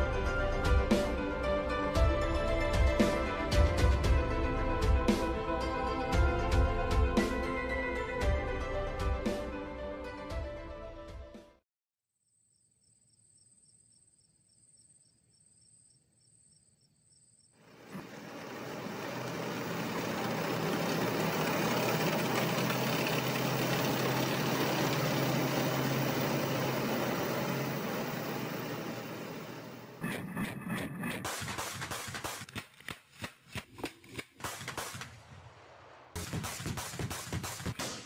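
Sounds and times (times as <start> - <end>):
crickets chirping: 12.3 - 22.2
tracked vehicle engine and tracks: 17.6 - 35.4.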